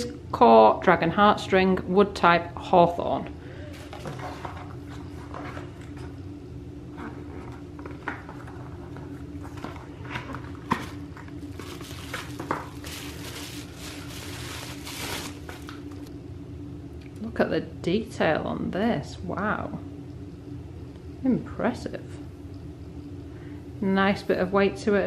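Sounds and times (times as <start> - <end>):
bubble wrap crinkling: 10.7 - 16.1.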